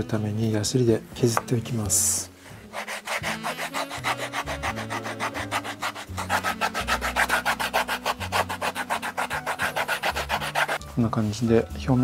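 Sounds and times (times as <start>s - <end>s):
hand rasp scraping leather: 2.7s - 10.8s.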